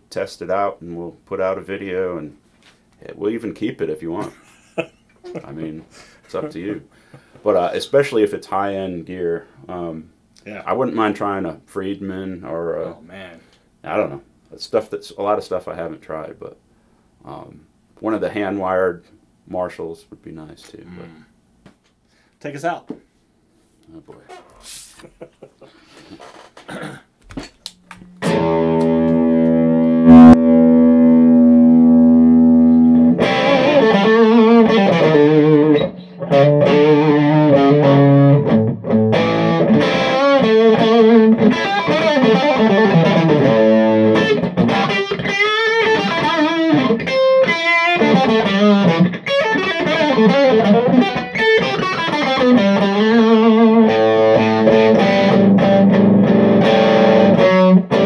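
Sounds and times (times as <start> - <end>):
electric guitar lead lines: 27.9 - 58.0
electric guitar chord ringing: 28.1 - 58.0.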